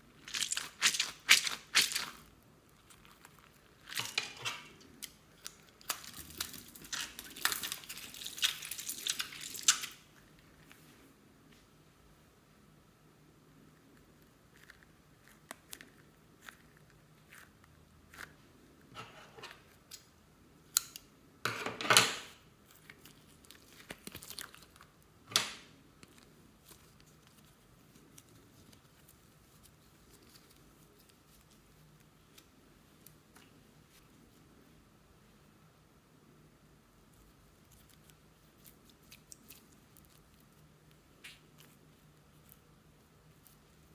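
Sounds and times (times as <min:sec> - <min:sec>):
slime tubs crunching: 0:00.2 - 0:04.2.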